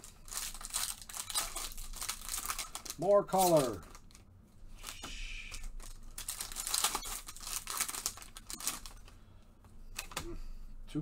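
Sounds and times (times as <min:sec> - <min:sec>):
foil wrapper crinkling and tearing: 0:00.0 - 0:04.2, 0:04.8 - 0:09.0.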